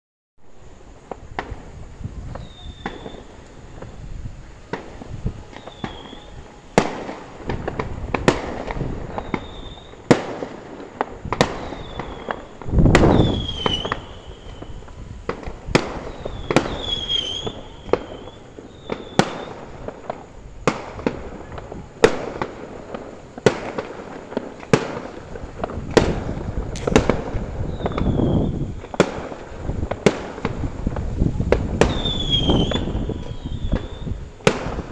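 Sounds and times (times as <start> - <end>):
fireworks bangs: 0.4 - 34.9
rumbling firework boom: 0.5 - 34.9
high whistling tones: 2.2 - 7.6, 9.0 - 10.1, 11.4 - 19.7, 31.8 - 34.4.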